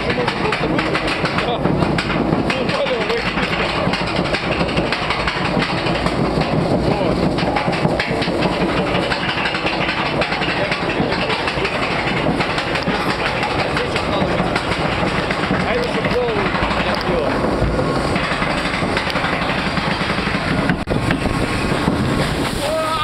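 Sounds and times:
lift chain clattering: 0:00.0 - 0:21.8.

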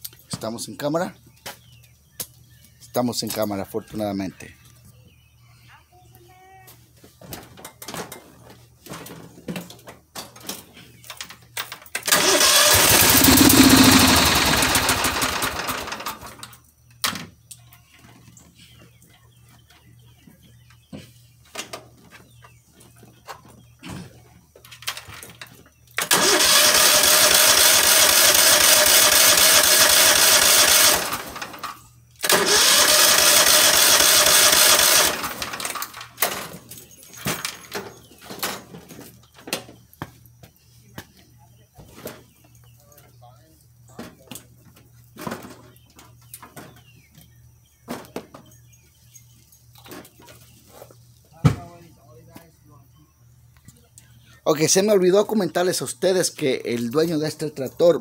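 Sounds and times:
electric starter cranking engine: 0:12.0 - 0:16.5, 0:26.0 - 0:36.2.

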